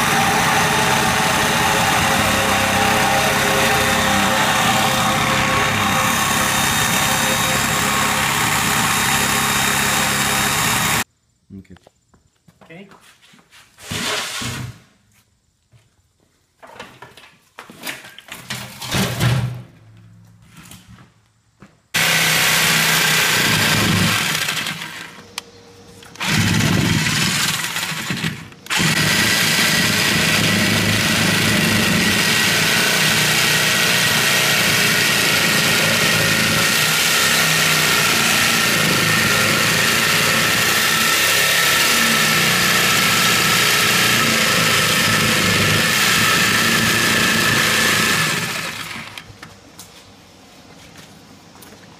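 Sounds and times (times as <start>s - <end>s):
rotary power tool cutting steel: 0.0s - 11.1s, 22.0s - 25.2s, 26.1s - 49.2s.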